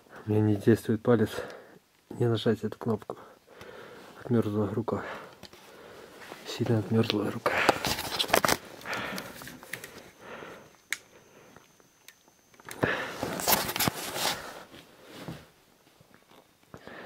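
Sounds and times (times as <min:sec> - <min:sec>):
faint high whine: 0:00.0 - 0:17.0
man breathing hard and sniffing: 0:03.3 - 0:04.2, 0:08.8 - 0:11.6, 0:12.7 - 0:13.5.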